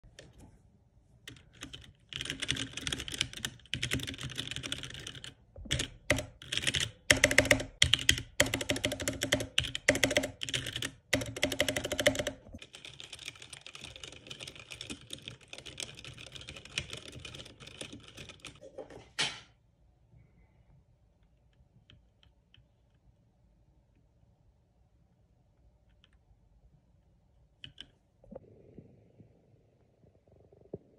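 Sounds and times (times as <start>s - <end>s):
typing on mechanical keyboard: 1.3s - 18.6s, 27.6s - 27.9s.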